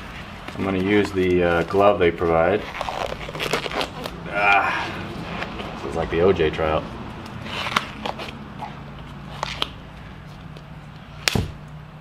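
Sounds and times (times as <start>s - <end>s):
rubber glove crackling: 0.0s - 6.0s
glove snapping: 9.4s - 9.8s, 10.4s - 11.8s.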